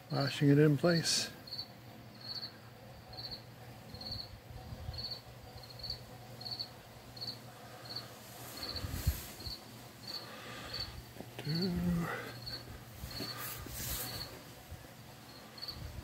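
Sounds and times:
faint low hum: 0:00.0 - 0:16.0
cricket chirping: 0:01.4 - 0:13.4, 0:14.1 - 0:14.3, 0:15.3 - 0:15.8.

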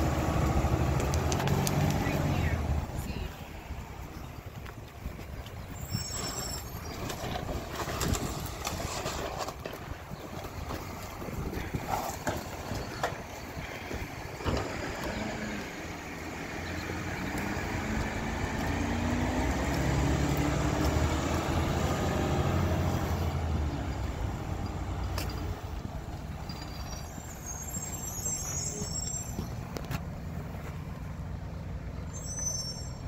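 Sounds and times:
truck diesel engine revving: 0:00.0 - 0:03.1, 0:10.4 - 0:33.0.

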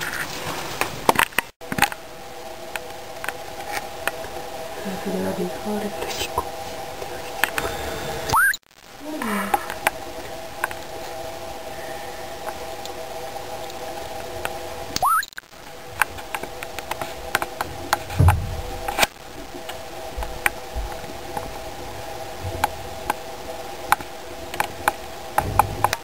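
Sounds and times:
rodents rustling in bedding: 0:00.0 - 0:01.2
steady hum: 0:00.0 - 0:26.0
low thump: 0:18.2 - 0:18.9.

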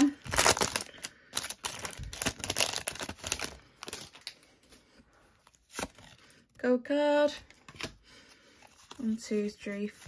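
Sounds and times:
foil wrapper crinkling: 0:00.0 - 0:04.4.

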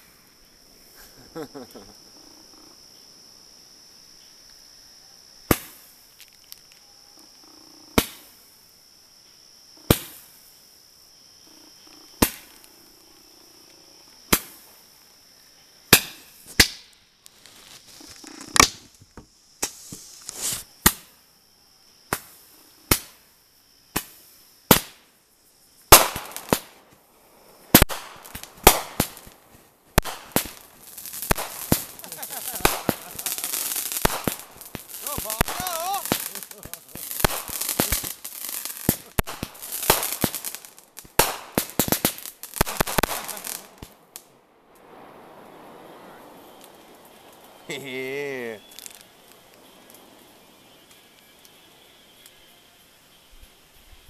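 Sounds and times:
fireworks crackling: 0:00.0 - 0:02.9, 0:05.4 - 0:08.7, 0:09.8 - 0:21.2, 0:22.0 - 0:54.0
high insect trill: 0:00.0 - 0:54.0
fireworks popping: 0:05.5 - 0:06.8, 0:07.9 - 0:08.4, 0:09.8 - 0:10.5, 0:11.8 - 0:14.8, 0:15.9 - 0:21.2, 0:22.1 - 0:23.2, 0:23.9 - 0:25.1, 0:25.8 - 0:27.1, 0:27.7 - 0:51.6.

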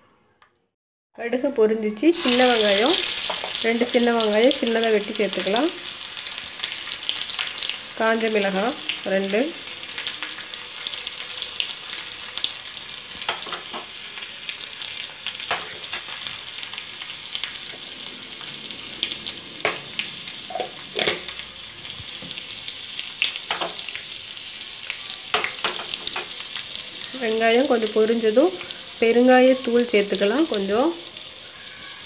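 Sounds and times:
hot oil sizzling in pan: 0:01.9 - 0:32.0.

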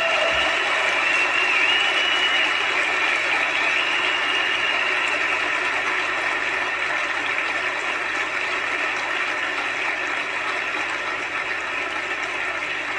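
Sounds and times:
crowd applauding: 0:00.0 - 0:12.9.

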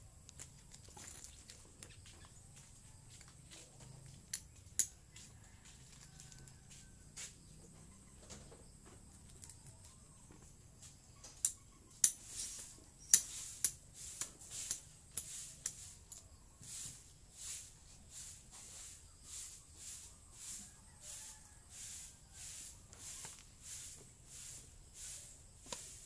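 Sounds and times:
high insect whine: 0:03.8 - 0:26.0
hoe chopping and scraping soil: 0:21.3 - 0:26.0.

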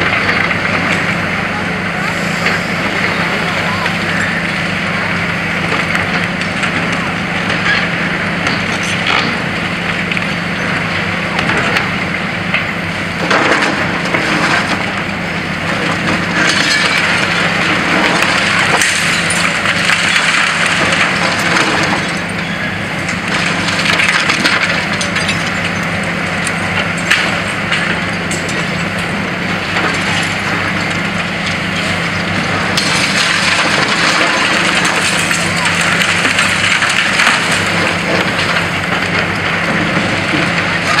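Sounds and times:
concrete crunching and cracking: 0:00.0 - 0:41.0
excavator engine drone: 0:00.0 - 0:41.0
falling rubble: 0:12.6 - 0:41.0.

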